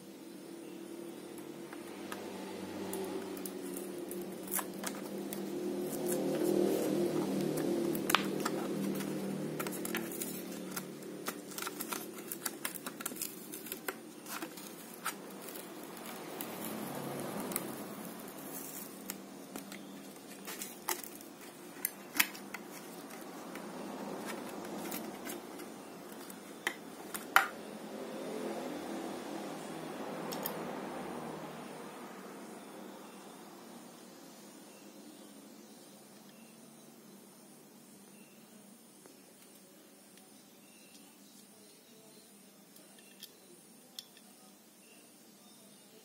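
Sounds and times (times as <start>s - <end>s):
plastic blister crackling: 1.7s - 27.5s
cardboard ripping: 3.6s - 23.4s.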